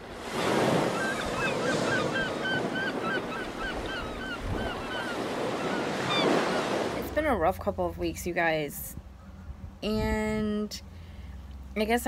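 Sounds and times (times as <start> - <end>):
surf washing on shore: 0.0 - 7.2.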